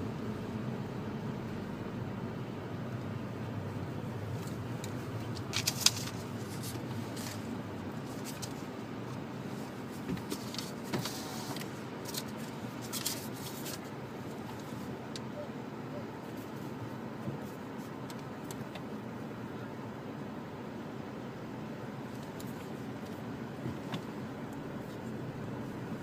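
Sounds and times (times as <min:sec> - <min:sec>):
sharp clicks and rattles: 0:04.4 - 0:07.4
car cabin rumble: 0:13.9 - 0:26.0.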